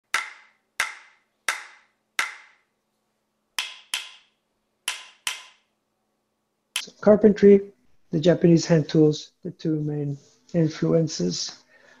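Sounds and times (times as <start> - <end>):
sharp percussive clacks: 0.0 - 2.6, 3.6 - 5.7.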